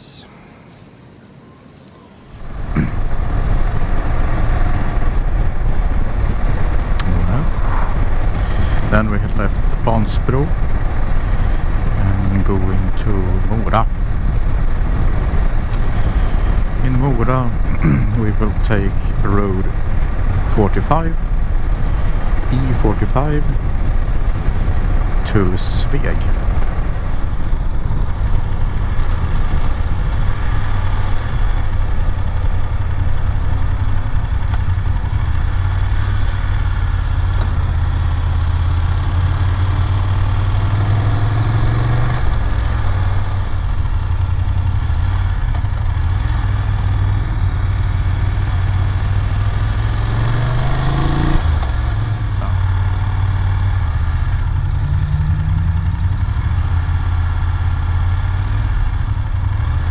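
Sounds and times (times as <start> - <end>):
wind noise: 2.1 - 37.7
motorcycle engine running: 2.4 - 59.9.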